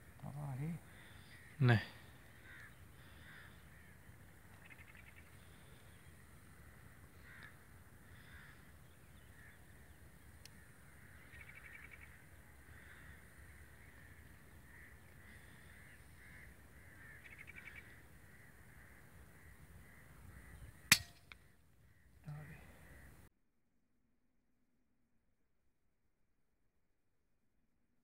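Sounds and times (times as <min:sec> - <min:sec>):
faint bird calls: 0:00.0 - 0:23.3.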